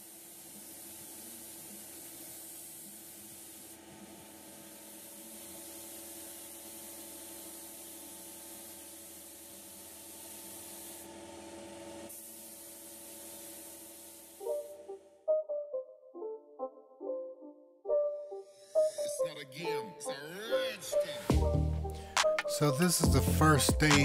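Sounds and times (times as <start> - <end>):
compressed air hissing: 0.0 - 11.1, 12.1 - 14.8.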